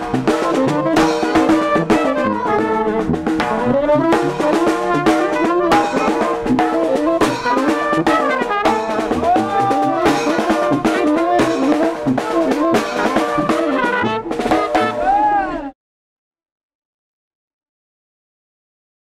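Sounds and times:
steady drum beat: 0.0 - 15.2
brass band playing: 0.0 - 15.5.

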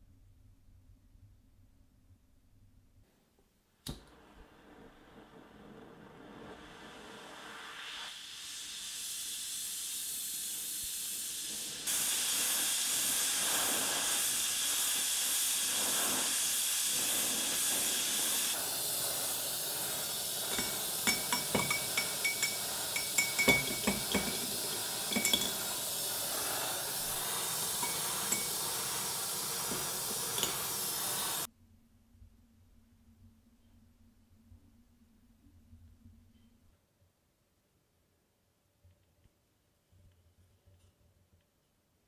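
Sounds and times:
gas torch flame hissing: 3.9 - 31.5
metal clinking against glass jar: 20.5 - 25.7, 27.8 - 28.6, 30.3 - 30.7.

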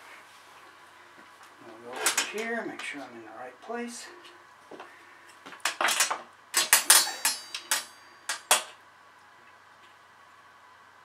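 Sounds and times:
metallic clinks and knocks: 5.7 - 8.8.

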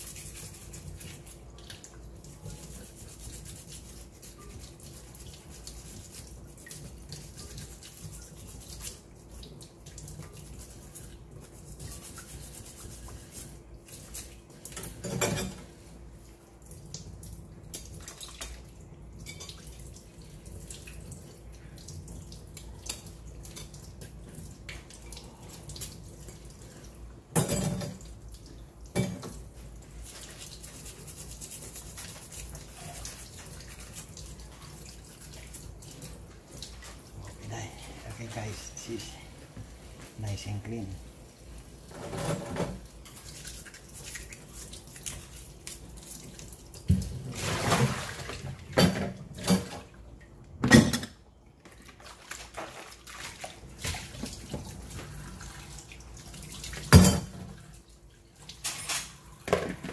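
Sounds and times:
splashing water: 42.9 - 48.8, 51.7 - 58.6.

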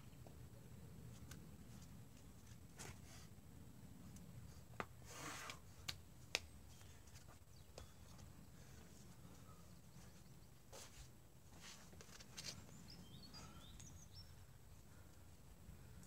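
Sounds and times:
hands and shoes tapping on rock: 5.9 - 8.3.

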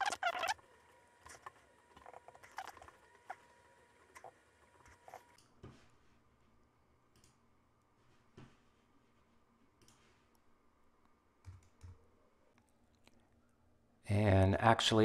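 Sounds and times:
computer mouse clicks: 7.1 - 7.4, 9.8 - 10.1, 11.4 - 12.0.

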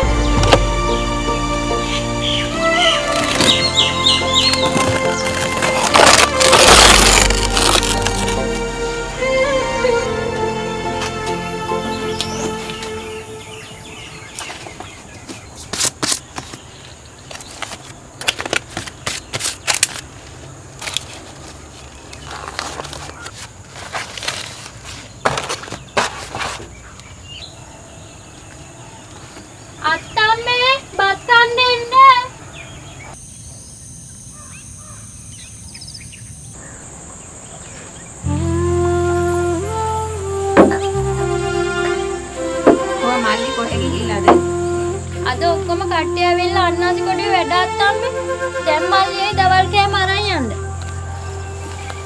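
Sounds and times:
soft flute-like music: 0.0 - 14.4, 38.2 - 52.0
bird chirps: 1.8 - 5.4, 11.8 - 17.5, 32.3 - 38.3
dry leaf crackling rustles: 3.0 - 8.7, 14.1 - 27.1, 50.3 - 52.0
insect drone: 33.2 - 52.0
high-pitched bending call: 38.2 - 52.0.

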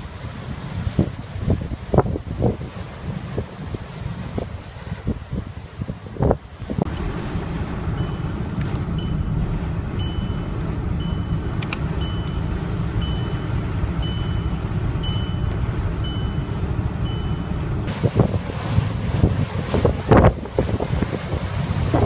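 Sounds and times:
car driving rumble: 0.0 - 22.0
wind gust on microphone: 0.0 - 22.0
high electronic warning beep: 8.0 - 8.3, 9.0 - 9.4, 10.0 - 17.6.

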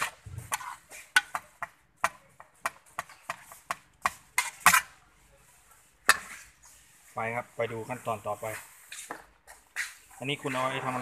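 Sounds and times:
metal spoon scraping plastic basin: 0.0 - 1.3, 3.0 - 5.0.

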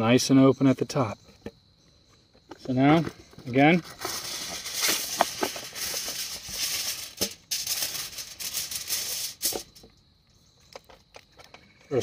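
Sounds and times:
aluminium foil crinkling: 3.8 - 9.8.

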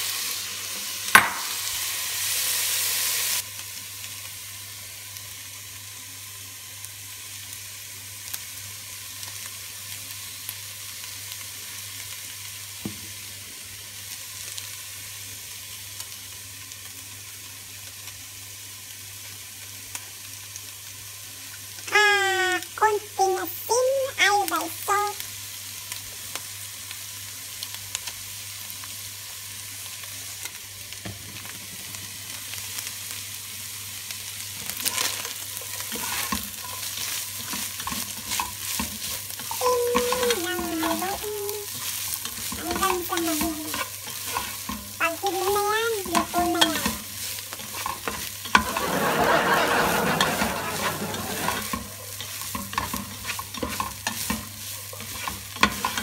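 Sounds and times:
meat and vegetables sizzling: 0.0 - 56.0
spatula scraping and tapping pan: 34.8 - 56.0.

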